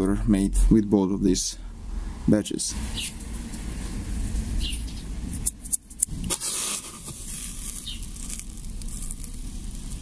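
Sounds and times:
gritty hiss of sliding crystals: 6.3s - 10.0s
hand scooping granules in plastic bowl: 6.3s - 10.0s.

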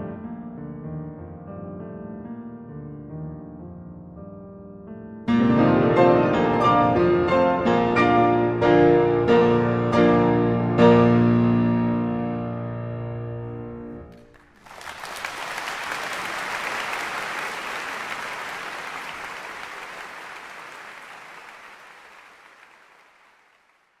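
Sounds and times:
audience applause: 14.1s - 24.0s.

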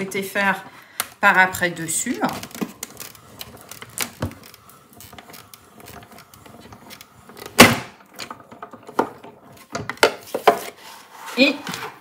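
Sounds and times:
die-cutting machine rolling: 1.8s - 10.0s.

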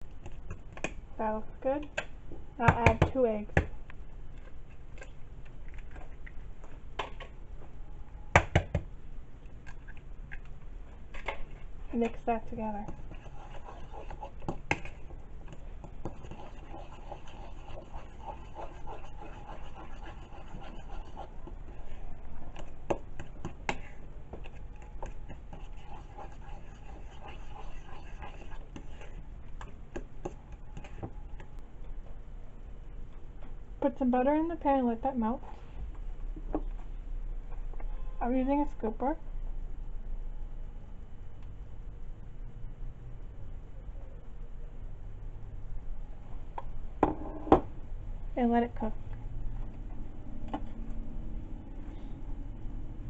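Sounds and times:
fork scraping a ceramic bowl: 16.1s - 21.4s.

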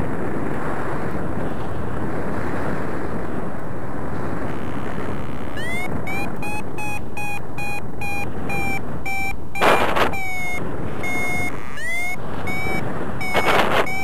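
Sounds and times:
wind noise on microphone: 0.0s - 14.0s
variometer beeping: 5.2s - 14.0s.

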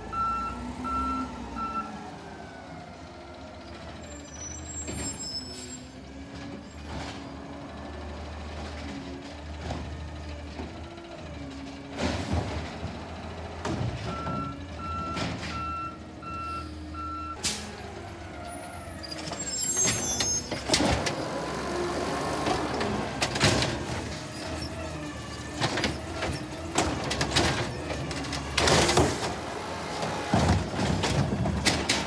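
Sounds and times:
reversing alarm beeping: 0.1s - 2.0s, 14.1s - 17.4s
truck engine speeding up: 20.6s - 32.0s.

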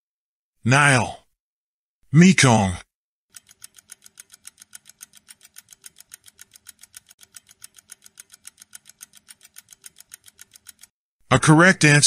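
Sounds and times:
rapid clock ticking: 3.3s - 11.0s.

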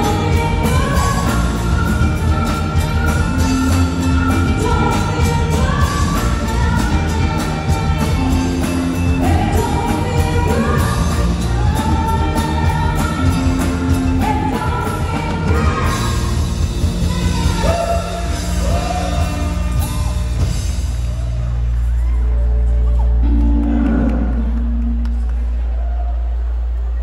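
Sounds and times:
person singing: 0.0s - 20.3s
electric bass: 0.0s - 27.0s.

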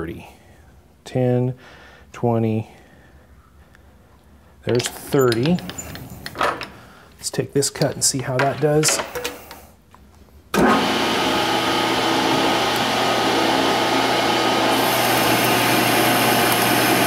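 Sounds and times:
lathe hum with gear whine: 10.6s - 17.0s
high hiss of cutting: 14.6s - 17.0s.

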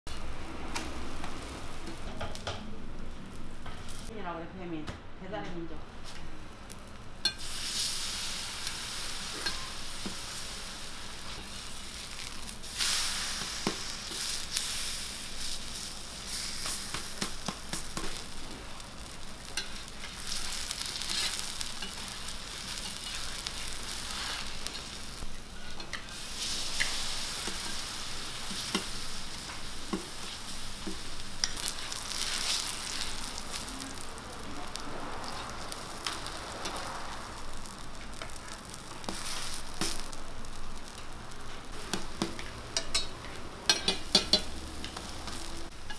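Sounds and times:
pancakes sizzling in oil: 6.0s - 45.9s
metal spatula scraping griddle: 19.5s - 33.2s.

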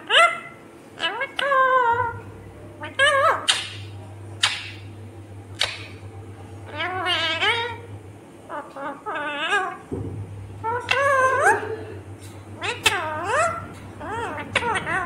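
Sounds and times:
parakeet squawking calls: 0.0s - 4.9s, 5.5s - 6.0s, 6.6s - 7.9s, 8.5s - 9.9s, 10.6s - 11.8s, 12.6s - 15.0s
low steady hum: 0.0s - 15.0s.

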